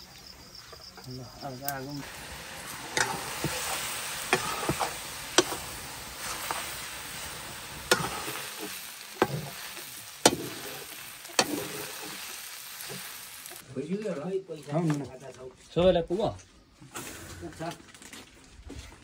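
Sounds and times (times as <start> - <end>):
meat sizzling in a wok: 1.4 - 13.6.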